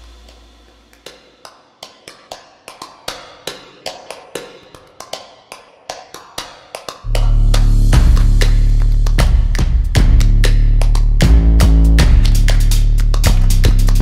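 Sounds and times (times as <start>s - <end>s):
music beat with heavy bass: 0.0s - 1.0s, 7.1s - 14.0s.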